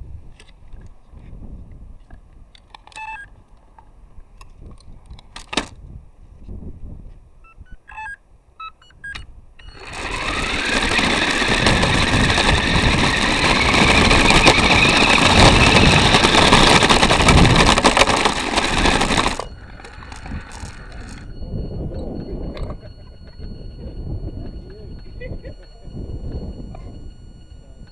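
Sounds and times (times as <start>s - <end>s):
toy car motor whining: 9.6s - 27.9s
car rattling over paving: 9.7s - 21.3s.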